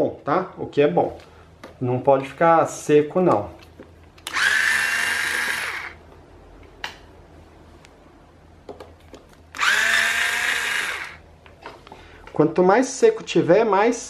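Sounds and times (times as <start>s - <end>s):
electric screwdriver whining: 4.2s - 6.0s, 9.5s - 11.2s.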